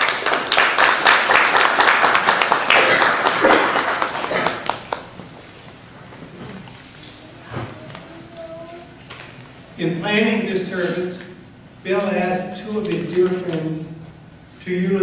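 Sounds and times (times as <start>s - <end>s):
audience clapping: 0.0s - 5.2s.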